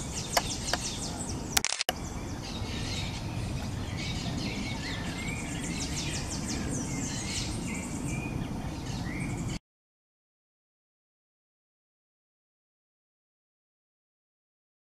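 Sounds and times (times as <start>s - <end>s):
small birds chirping: 0.0s - 9.6s.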